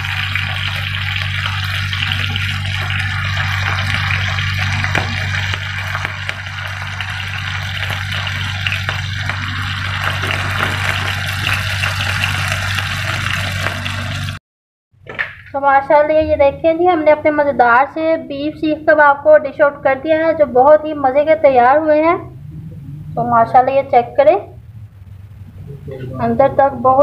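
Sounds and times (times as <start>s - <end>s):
kebabs sizzling on a griddle: 0.0s - 14.4s
steady low hum: 0.0s - 14.4s, 15.5s - 27.0s.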